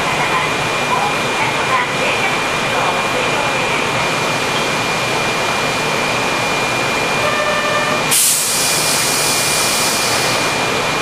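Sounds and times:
subway train humming and hissing: 0:00.0 - 0:11.0
loud hiss of air: 0:08.1 - 0:10.6.

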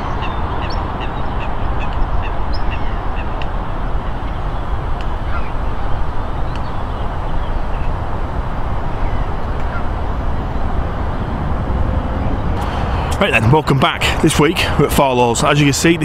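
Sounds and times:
waterfowl calling: 0:00.0 - 0:08.0, 0:08.8 - 0:10.0
steady rushing noise: 0:00.0 - 0:16.0.

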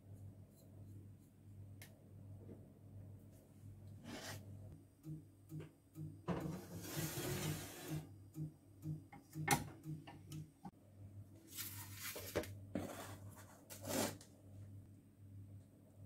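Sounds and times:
low steady hum: 0:00.0 - 0:06.8, 0:07.9 - 0:16.0
metal pan scraping on countertop: 0:06.3 - 0:08.0.

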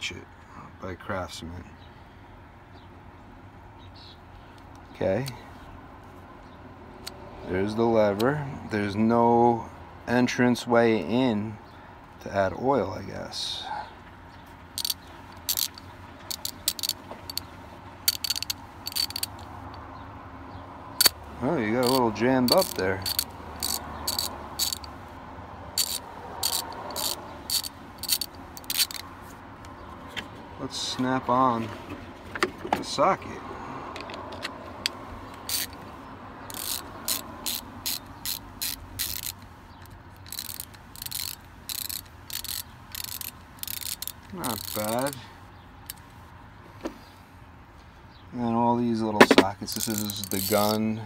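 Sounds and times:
ratchet clicking rapidly: 0:14.8 - 0:19.9, 0:21.0 - 0:25.0, 0:25.8 - 0:29.1, 0:34.8 - 0:45.2, 0:49.2 - 0:51.0.

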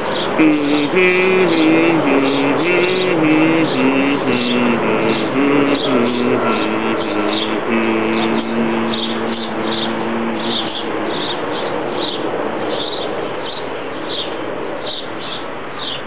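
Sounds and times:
held music chord: 0:00.4 - 0:11.8.

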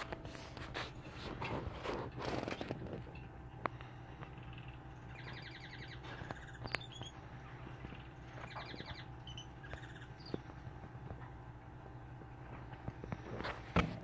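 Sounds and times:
steady low hum: 0:00.0 - 0:14.0
small animal chirping: 0:04.3 - 0:10.6.

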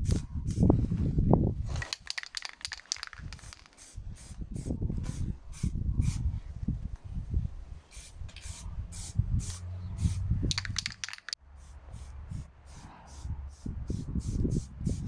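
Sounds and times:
spray paint can hissing: 0:01.7 - 0:06.2, 0:07.9 - 0:15.0.

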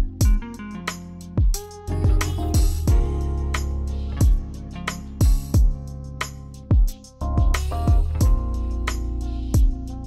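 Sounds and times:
deep drum hits: 0:01.4 - 0:03.2, 0:06.7 - 0:08.5.

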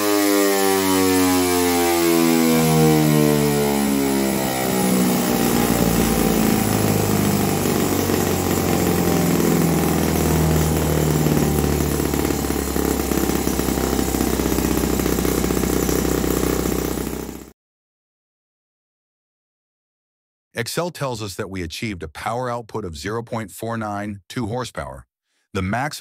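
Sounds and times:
model engine running under load: 0:00.1 - 0:17.5.

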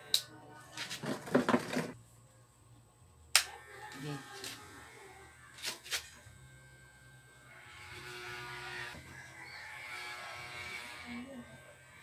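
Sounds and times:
electric hair clippers buzzing: 0:03.3 - 0:12.0.

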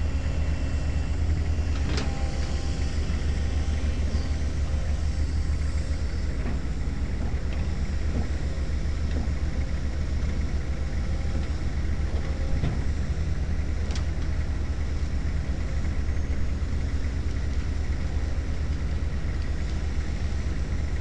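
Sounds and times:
diesel engines rumbling: 0:00.0 - 0:21.0.

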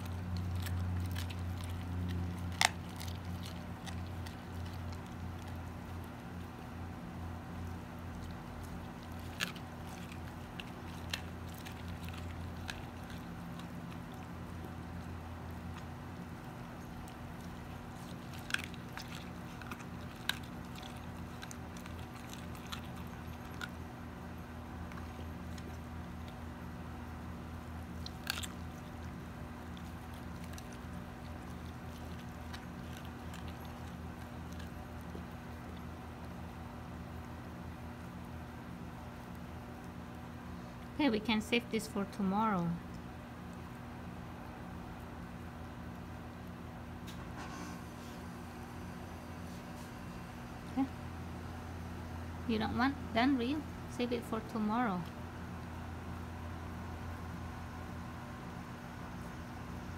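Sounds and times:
fish bone crunching: 0:00.0 - 0:37.0
dog chewing fish: 0:00.0 - 0:47.1, 0:54.4 - 0:59.9
steady low hum: 0:00.0 - 0:59.9.

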